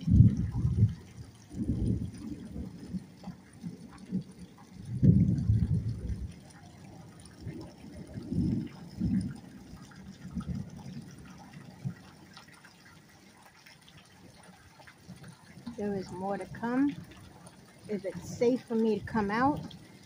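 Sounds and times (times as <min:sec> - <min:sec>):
wind gusts on microphone: 0:00.0 - 0:06.5, 0:07.2 - 0:12.0
rain falling: 0:00.0 - 0:20.0.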